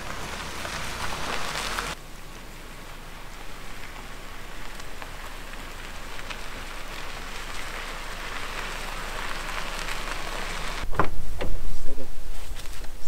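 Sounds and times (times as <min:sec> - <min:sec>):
tyres crunching on gravel: 0:00.0 - 0:10.9.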